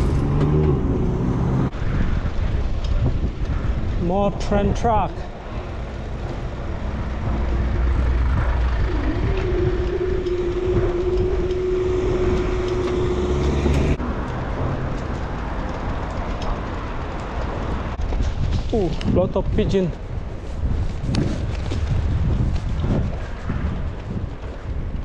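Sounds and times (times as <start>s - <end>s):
cars passing: 0.0s - 3.9s, 5.1s - 18.2s
wind and tyre rumble: 0.0s - 25.0s
steady hum: 5.3s - 14.0s.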